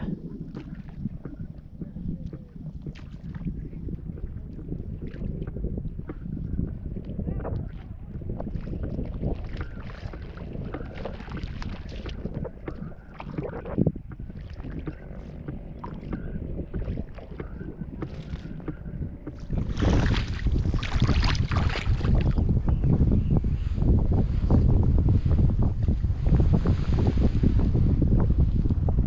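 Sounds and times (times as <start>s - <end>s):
wind buffeting microphone: 0.0s - 29.0s
small waves lapping: 7.6s - 22.4s.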